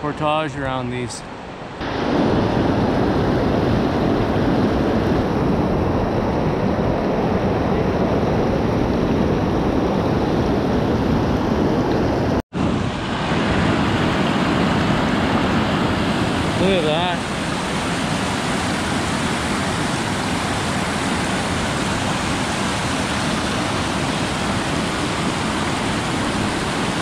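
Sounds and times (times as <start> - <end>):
whitewater rushing over rocks: 12.6 - 27.0.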